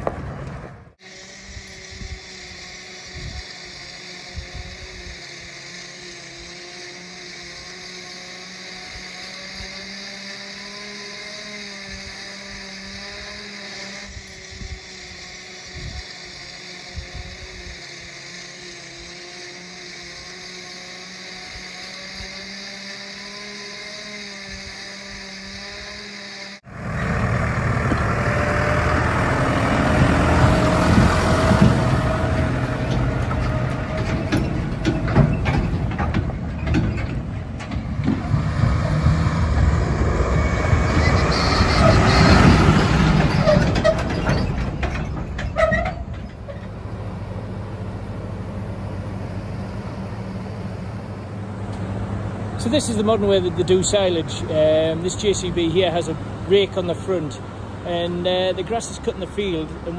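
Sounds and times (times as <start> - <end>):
tractor engine running: 0.0 - 59.9
steady hum with held tones: 1.0 - 26.6
trailer knocks and rattles: 27.0 - 50.4.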